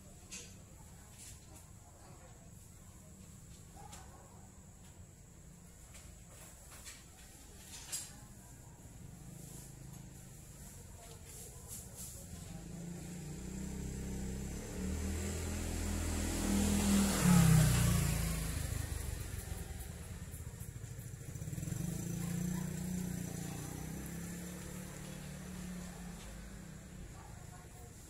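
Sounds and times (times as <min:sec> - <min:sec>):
faint second engine: 0:08.5 - 0:28.0
vehicle engine passing by: 0:12.1 - 0:28.0.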